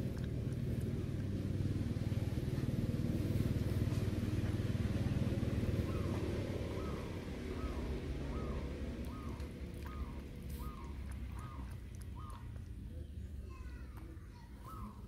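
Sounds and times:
vehicle engine rumbling: 0.0s - 15.0s.

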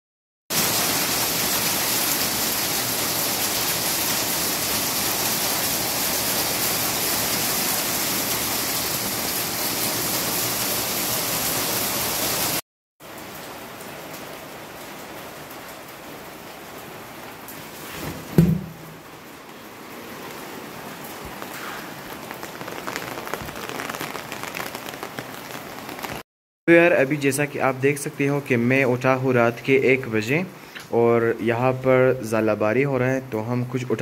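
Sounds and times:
hail pelting concrete: 0.5s - 12.6s, 21.0s - 26.2s.

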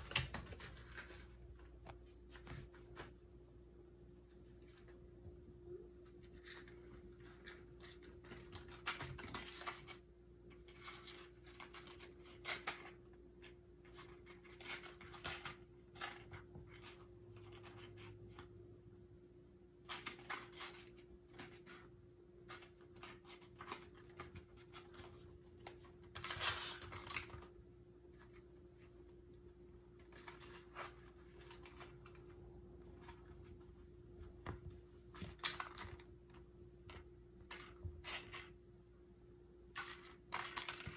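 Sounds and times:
kittens pattering on hard floor: 0.0s - 3.2s
faint steady hum: 0.0s - 40.9s.

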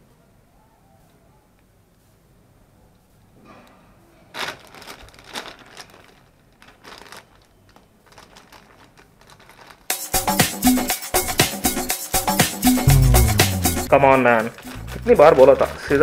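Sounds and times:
plastic mailer bag crinkling: 4.4s - 10.0s
loud music with steady beat: 12.4s - 13.9s.

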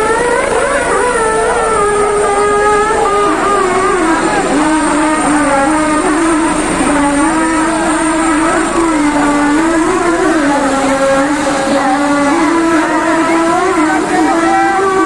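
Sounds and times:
helicopter engine drone: 0.0s - 15.0s.

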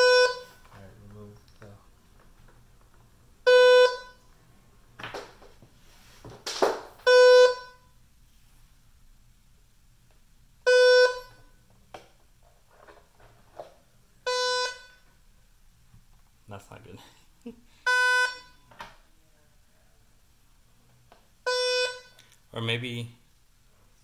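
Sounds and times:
buzzy alarm beeps: 0.0s - 0.7s, 3.4s - 4.2s, 7.0s - 8.0s, 10.6s - 11.6s, 14.2s - 15.1s, 17.8s - 18.7s, 21.4s - 22.2s.

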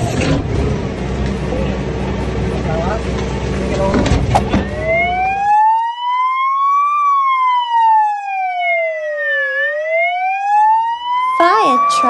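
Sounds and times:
garbage truck machinery running: 0.0s - 5.4s
wailing siren: 4.5s - 12.0s.

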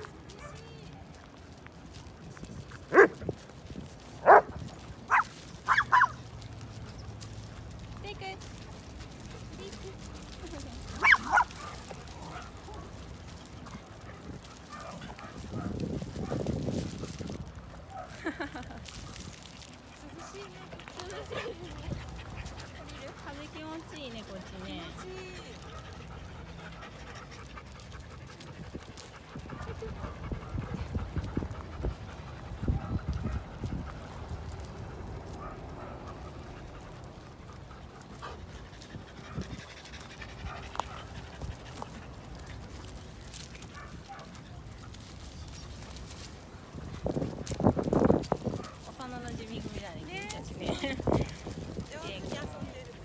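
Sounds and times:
dogs scuffling on wood chips: 0.0s - 53.0s
dog yipping: 5.1s - 6.2s, 11.0s - 12.9s.

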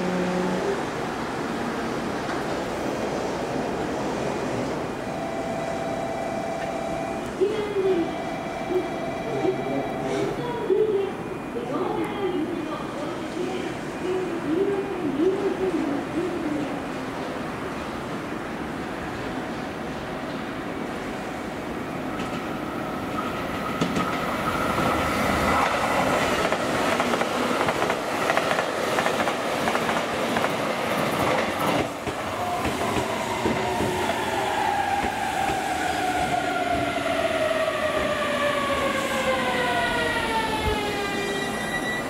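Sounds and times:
train whine falling in pitch: 5.0s - 7.4s
train wheels rushing on rail: 12.1s - 42.0s.

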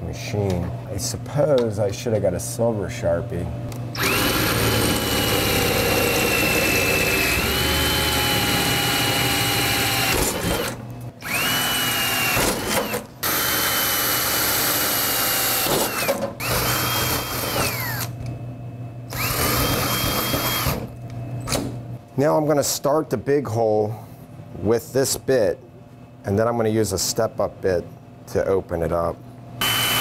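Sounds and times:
cordless drill boring through steel: 4.0s - 18.1s, 19.1s - 20.8s, 29.6s - 30.0s.

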